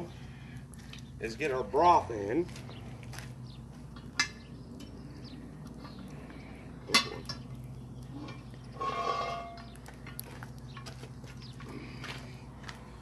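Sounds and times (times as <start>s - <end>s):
metal clanks: 6.9s - 7.5s, 8.2s - 10.9s
ringing metallic scrape: 8.2s - 9.8s.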